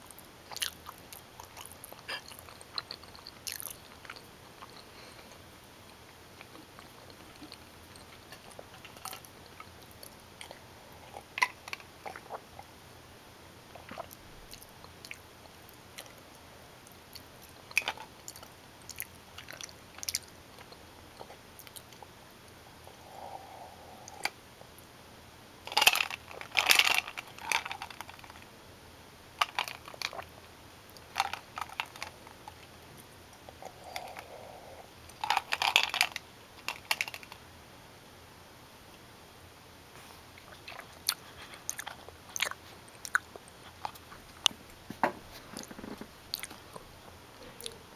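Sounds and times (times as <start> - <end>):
chewing and mouth sounds: 0.5 - 5.3, 13.7 - 16.2, 16.9 - 22.1, 40.3 - 44.6, 45.5 - 47.8.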